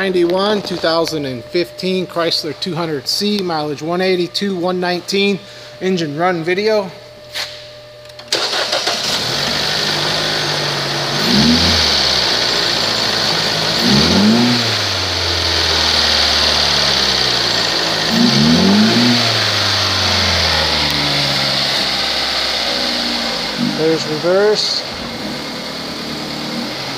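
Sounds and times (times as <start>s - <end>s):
car engine starting and idling: 8.2s - 26.9s
engine revving: 8.3s - 26.9s.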